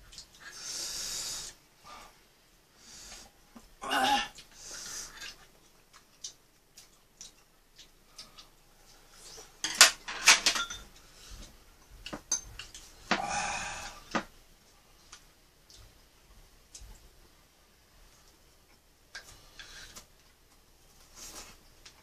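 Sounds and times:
utensils clinking on dishes: 9.6 - 11.0, 12.2 - 13.2.

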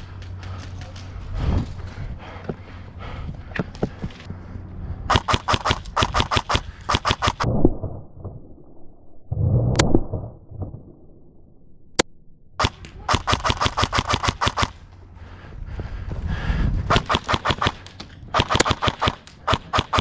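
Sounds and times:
airsoft gun shots: 5.1 - 7.5, 12.6 - 14.8, 16.9 - 20.0
rapid full-auto bursts: 5.1 - 7.5, 12.6 - 14.8, 16.9 - 20.0.

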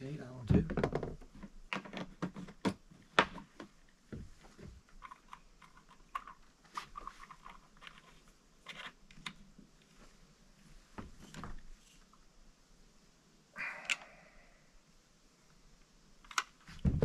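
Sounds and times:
plastic containers knocking: 0.6 - 1.3.

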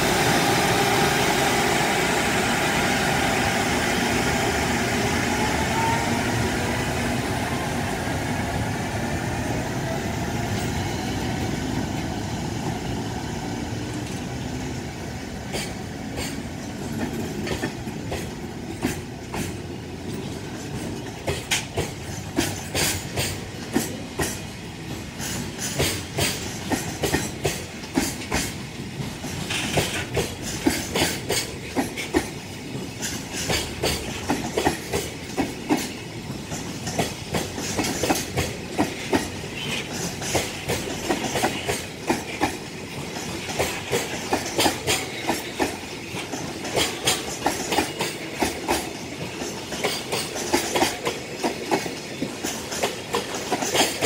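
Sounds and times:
train wheels clacking over rail joints: 13.8 - 54.0.

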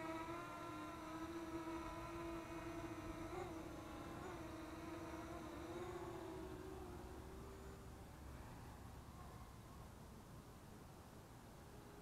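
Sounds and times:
drone propellers whining: 0.0 - 7.8.

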